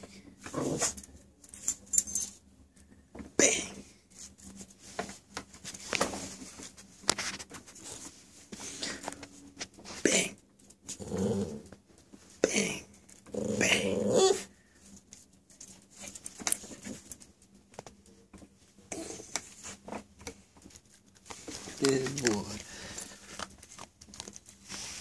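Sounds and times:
puppy growling: 0:00.4 - 0:01.0, 0:10.2 - 0:11.8, 0:12.4 - 0:14.5.

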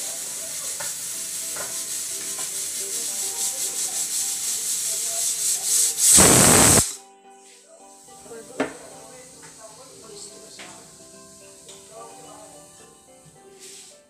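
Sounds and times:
pressure cooker hissing steam: 0:00.0 - 0:07.0
pressure cooker whistle: 0:05.8 - 0:07.0.

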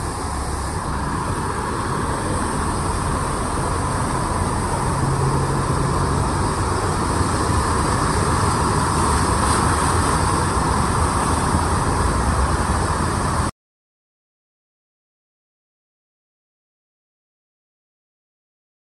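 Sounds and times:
car engines running: 0:00.0 - 0:13.5
rushing water: 0:00.0 - 0:13.5.

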